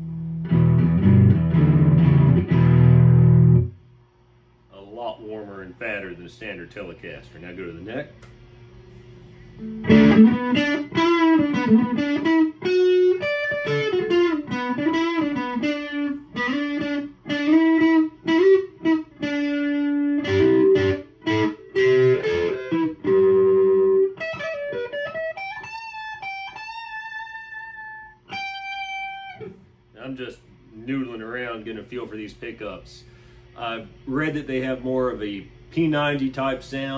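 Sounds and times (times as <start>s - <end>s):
electric guitar lead lines: 0.0s - 3.8s, 9.3s - 32.3s.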